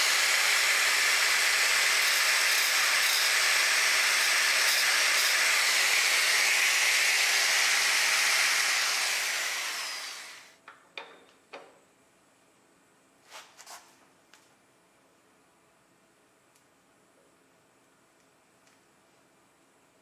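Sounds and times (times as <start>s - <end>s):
angle grinder whirring: 0.0s - 10.6s.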